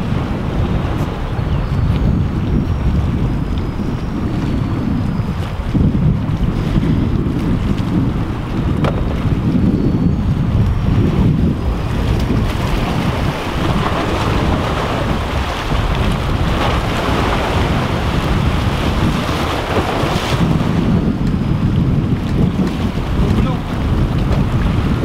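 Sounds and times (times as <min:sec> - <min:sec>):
wind buffeting microphone: 0:00.0 - 0:25.0
waves washing against rocks: 0:10.4 - 0:25.0.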